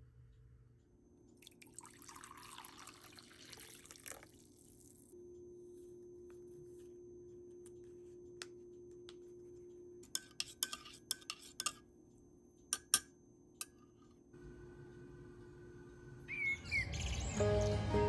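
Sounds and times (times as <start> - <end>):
faint steady hum: 0.0 - 16.7
spoon clinking in ceramic mug: 10.1 - 11.8.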